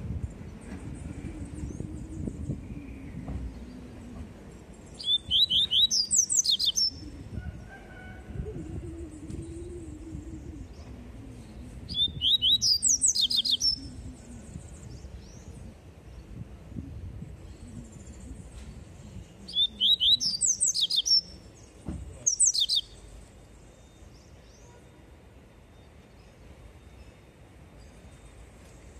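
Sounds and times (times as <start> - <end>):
steady low hum: 0.0 - 5.0, 6.3 - 12.2, 13.0 - 19.6.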